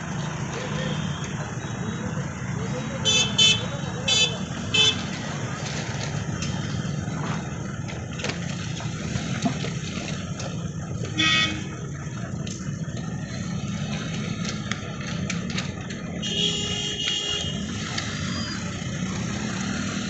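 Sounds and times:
vehicles crossing railway tracks: 0:00.0 - 0:20.0
vehicle horn toot: 0:11.1 - 0:11.7, 0:16.2 - 0:17.6.

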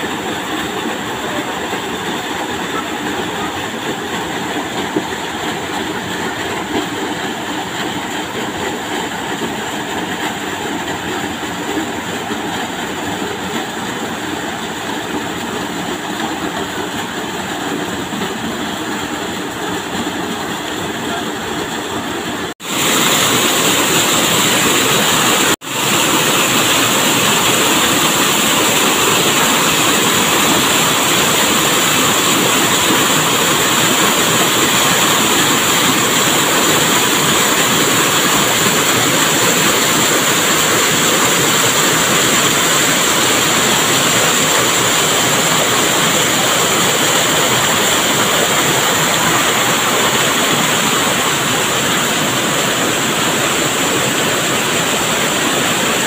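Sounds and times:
waterfall and stream rushing: 0:00.0 - 0:56.0.

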